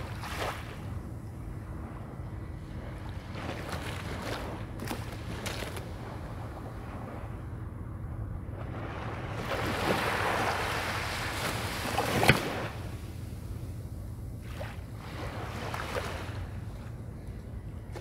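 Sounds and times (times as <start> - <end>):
small waves washing on shore: 0.0 - 1.0, 2.5 - 7.3, 8.5 - 13.7, 14.4 - 18.0
steady low hum: 0.0 - 18.0
wave slapping: 8.4 - 17.0.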